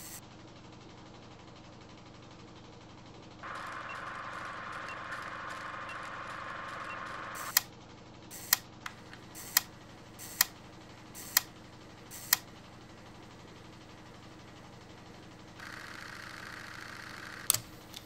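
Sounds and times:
steady hiss: 0:00.0 - 0:00.2
sharp clicks: 0:03.4 - 0:07.7, 0:08.3 - 0:10.6, 0:11.2 - 0:11.5, 0:12.1 - 0:12.5, 0:15.6 - 0:18.0.

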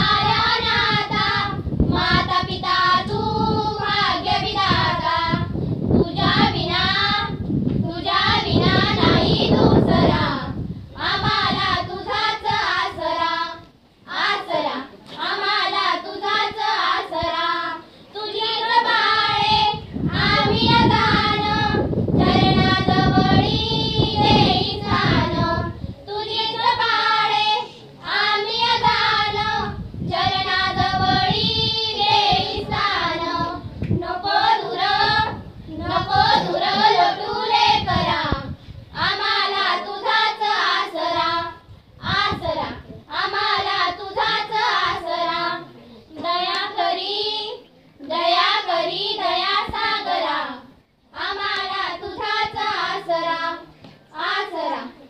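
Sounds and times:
girls singing without accompaniment: 0:00.0 - 0:55.0
singers breathing: 0:17.8 - 0:18.1, 0:38.5 - 0:38.9.

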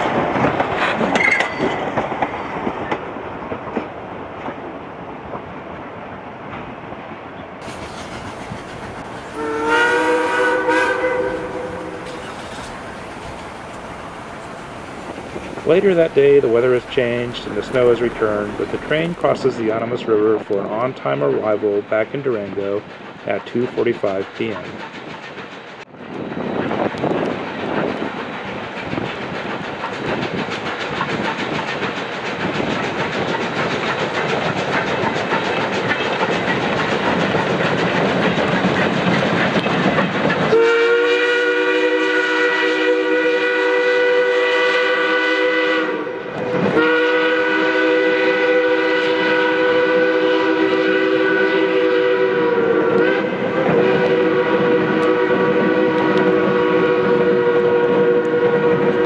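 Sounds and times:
steam train rolling over bridge: 0:00.0 - 0:59.0
steam whistle blast: 0:09.2 - 0:12.3, 0:40.5 - 0:59.0.

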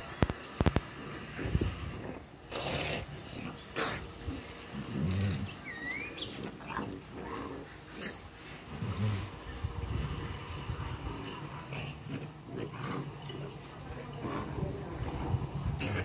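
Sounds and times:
dogs growling and snarling: 0:00.7 - 0:16.0
paws scuffling on gravel: 0:03.2 - 0:08.3.

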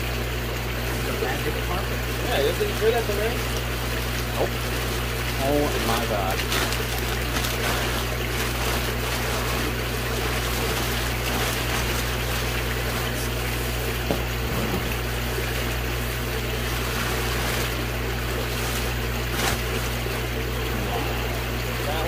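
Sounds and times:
water pump running: 0:00.0 - 0:22.0
plastic bag crinkling: 0:05.8 - 0:14.4, 0:16.5 - 0:20.5.

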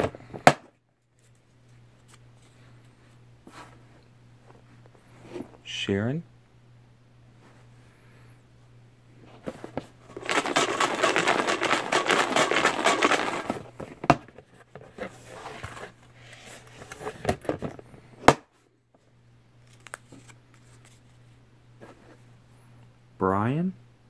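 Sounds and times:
paper slips rattling in plastic tote: 0:10.1 - 0:13.8.

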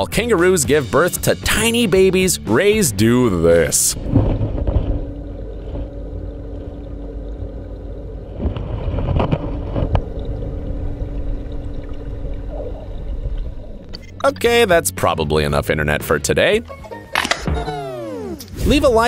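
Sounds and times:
underwater rumble: 0:03.4 - 0:14.3
faint steady hum: 0:04.0 - 0:14.3.

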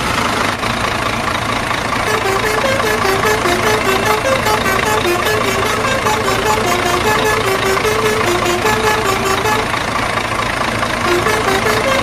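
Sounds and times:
truck engine running: 0:00.0 - 0:12.0
simple tune of stepping notes: 0:02.1 - 0:09.8, 0:11.0 - 0:12.0.

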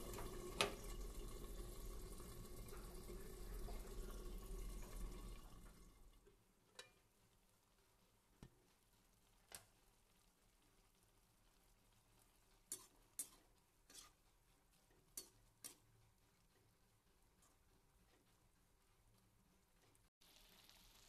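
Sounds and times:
metal spatula scraping a pan: 0:12.6 - 0:16.7.

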